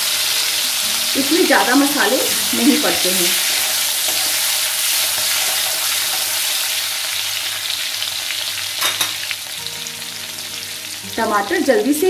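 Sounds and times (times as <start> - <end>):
oil sizzling in a pan: 0.0 - 12.0
spatula stirring: 3.2 - 6.4.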